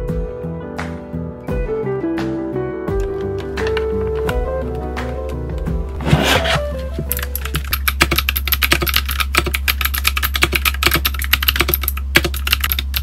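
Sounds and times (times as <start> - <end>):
background music: 0.0 - 8.0
mechanical keyboard typing: 6.2 - 13.0.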